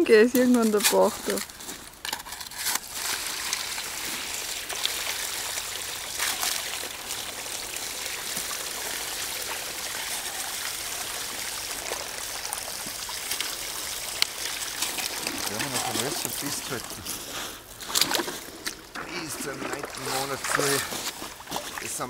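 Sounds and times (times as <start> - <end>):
water running over gravel: 0.0 - 22.0
gravel clicks: 0.2 - 22.0.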